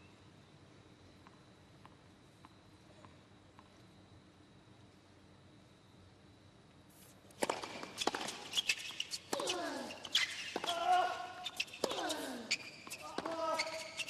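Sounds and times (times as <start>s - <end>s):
shoes squeaking on court: 7.4s - 14.0s.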